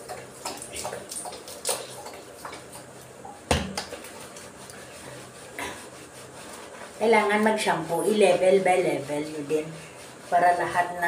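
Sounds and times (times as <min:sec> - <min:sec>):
lathering wet fur: 0:00.0 - 0:11.0.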